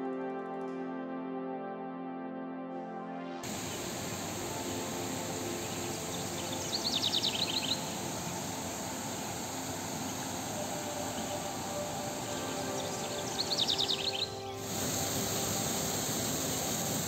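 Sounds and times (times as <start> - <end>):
stream rushing over rocks: 3.4 - 17.0
bird chirping: 3.5 - 17.0.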